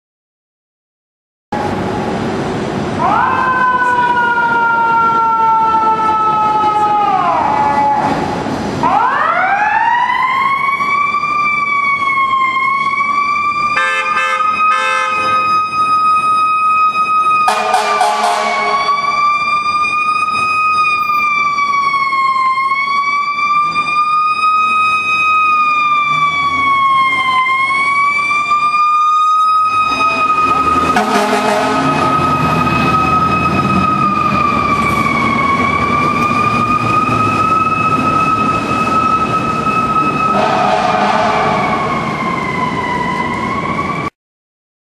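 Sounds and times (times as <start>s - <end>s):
mechanical siren wailing: 3.0s - 44.1s
air horn blasts: 13.8s - 15.5s, 17.4s - 19.0s, 30.8s - 32.1s, 40.3s - 41.8s.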